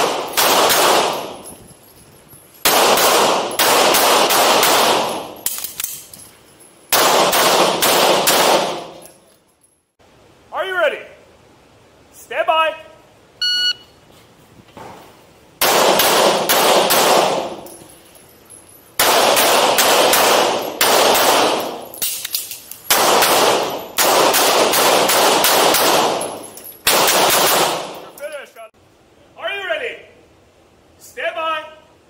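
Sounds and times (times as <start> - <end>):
pistol shots ringing indoors: 0.0 - 1.5, 2.6 - 6.0, 6.9 - 9.2, 15.6 - 17.8, 19.0 - 28.2.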